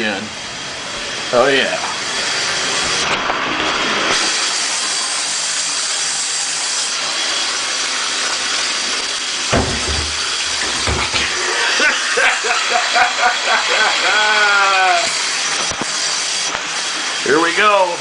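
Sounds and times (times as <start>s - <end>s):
dull thumps: 9.5s - 11.4s
tap water running into sink: 9.5s - 11.5s.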